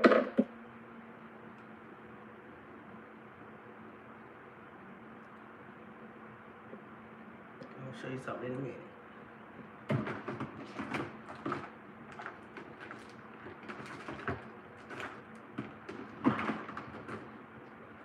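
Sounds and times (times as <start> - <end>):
objects being moved and set down: 9.9 - 17.4.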